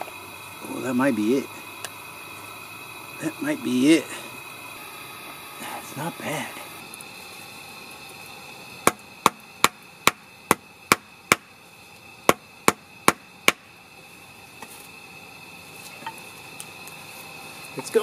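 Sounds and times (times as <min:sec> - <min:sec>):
hatchet knocking wood: 0:08.9 - 0:11.5, 0:12.3 - 0:13.6.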